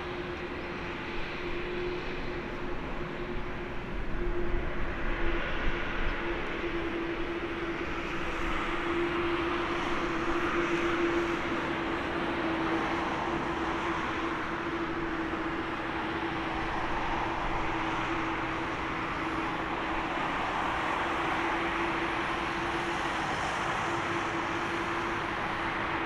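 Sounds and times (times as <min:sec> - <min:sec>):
constant low hum: 0:00.0 - 0:26.0
jet engines running: 0:05.6 - 0:26.0.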